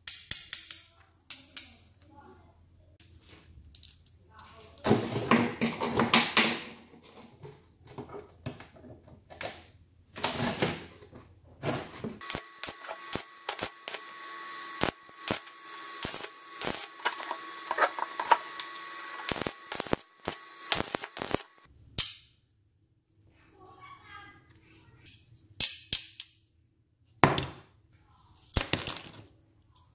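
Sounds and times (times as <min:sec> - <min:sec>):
arc welder crackling hiss: 0:12.2 - 0:21.7.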